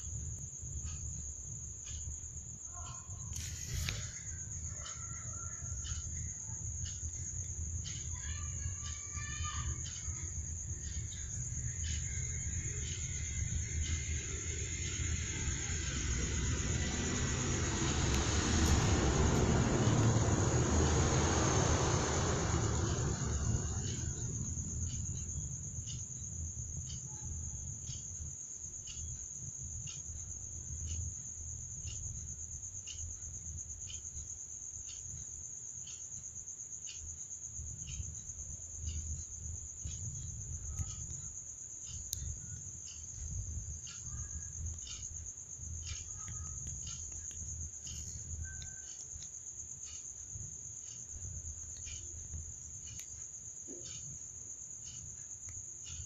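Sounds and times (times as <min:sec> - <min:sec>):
crickets trilling: 0:00.0 - 0:56.0
rushing noise: 0:09.4 - 0:25.3.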